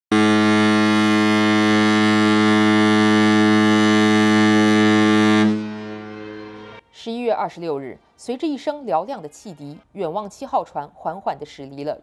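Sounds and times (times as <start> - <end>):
ship horn blast: 0.1 - 6.8.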